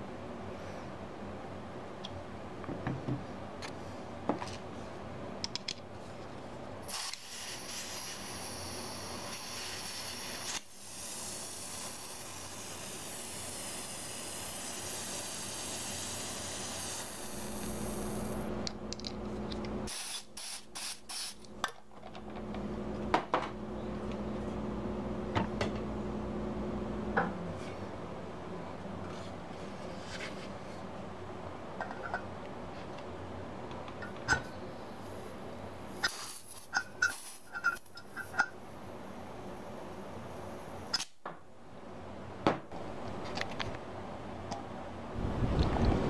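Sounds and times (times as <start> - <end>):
compressed gas hissing from valve: 6.8 - 18.5, 19.9 - 21.4, 35.9 - 38.5.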